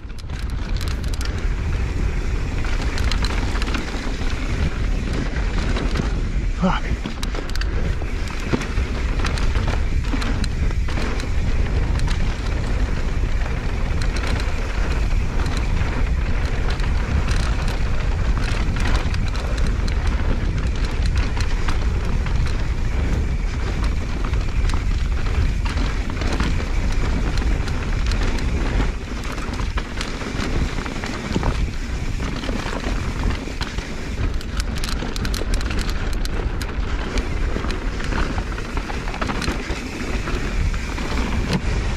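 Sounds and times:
bike rattling and clicking: 0.0 - 41.9
tyres on dirt: 0.0 - 41.9
wind rumble on microphone: 0.0 - 41.9.

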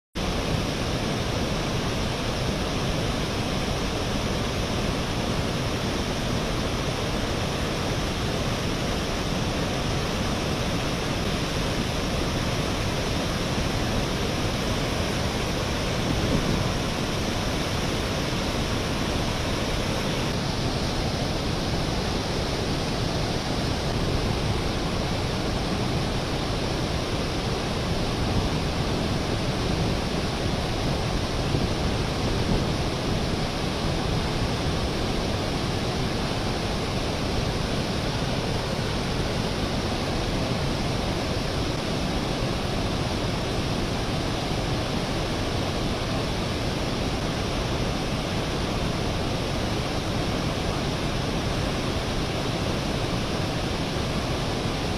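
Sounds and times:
steady rushing noise: 0.2 - 54.9.

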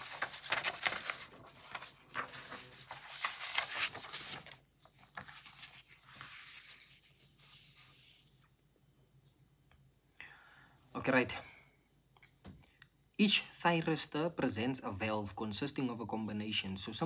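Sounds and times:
paper rustling and crinkling: 0.0 - 8.5.

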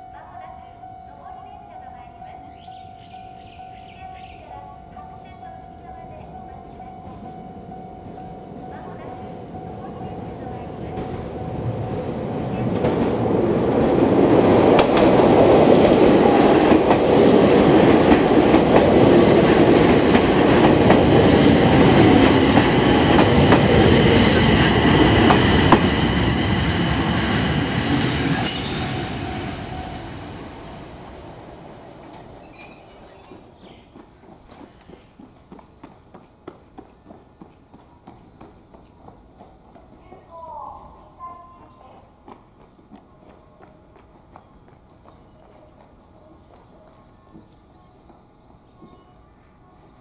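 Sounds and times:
train wheels rumbling: 1.1 - 46.7
high wheel squeal: 28.3 - 30.0, 32.0 - 34.1.

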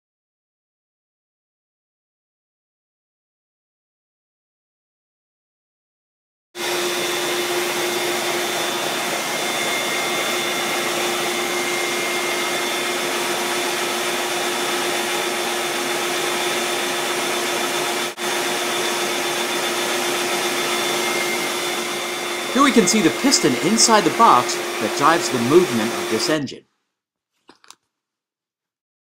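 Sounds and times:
vacuum motor whine: 6.6 - 26.5.

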